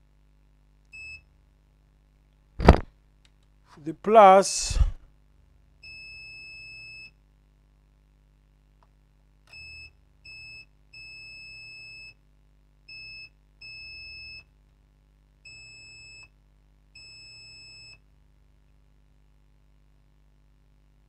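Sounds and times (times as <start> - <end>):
multimeter continuity buzzer beeping: 5.8 - 7.2, 9.5 - 14.5, 15.4 - 18.1.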